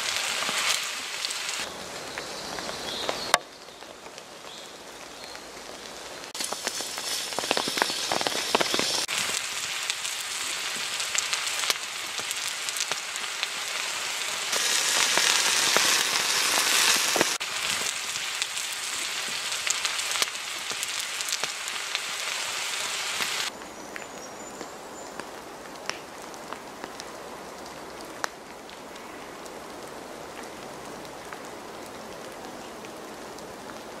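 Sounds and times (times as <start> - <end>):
food sizzling and bubbling in a pan: 0.0 - 23.6.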